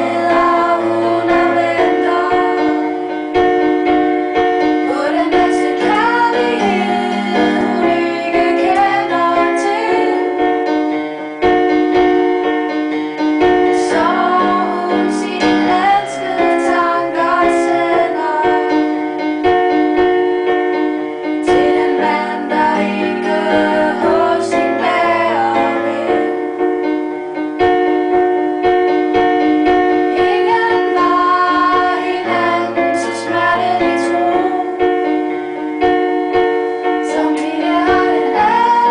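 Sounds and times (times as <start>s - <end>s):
woman singing: 0.0s - 2.8s, 4.9s - 10.4s, 13.8s - 18.9s, 21.5s - 26.3s, 30.2s - 34.9s, 37.0s - 38.9s
keyboard chords: 0.0s - 38.9s.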